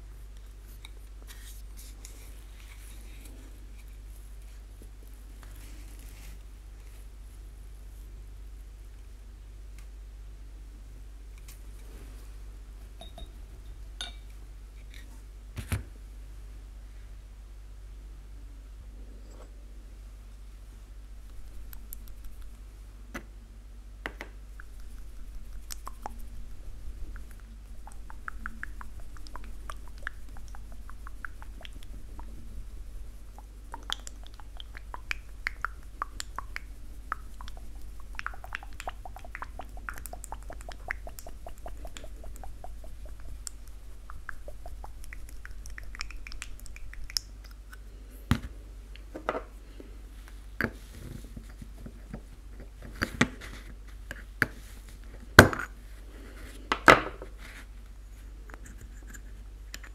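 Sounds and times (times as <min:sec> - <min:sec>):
faint low hum: 0:00.0 - 0:59.9.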